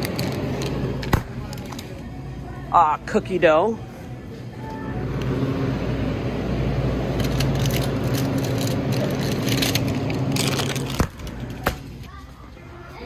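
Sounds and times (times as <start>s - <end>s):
refrigerated cooler humming: 0.0s - 12.1s
plastic packaging crinkling: 7.2s - 11.6s.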